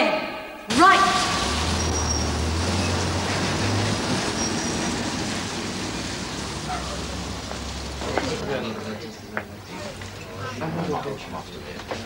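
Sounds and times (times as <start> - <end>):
car engine hum: 0.7 - 8.8
road noise hiss: 0.7 - 12.0.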